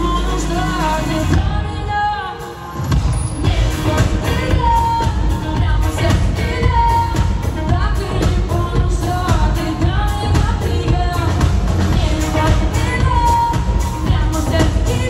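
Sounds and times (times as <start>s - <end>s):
woman singing: 0.0s - 15.0s
heavy bass beat: 2.9s - 15.0s.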